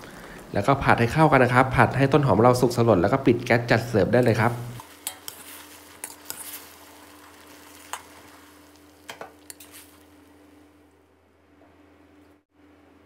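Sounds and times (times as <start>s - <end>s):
light sizzle: 0.0s - 12.5s
spatula scraping metal wok: 4.8s - 8.3s, 9.4s - 10.0s.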